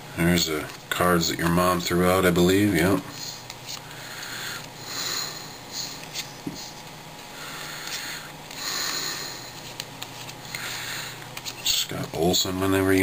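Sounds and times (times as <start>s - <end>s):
cards sliding papery swishes: 3.1s - 4.8s, 5.7s - 8.7s, 9.4s - 12.3s.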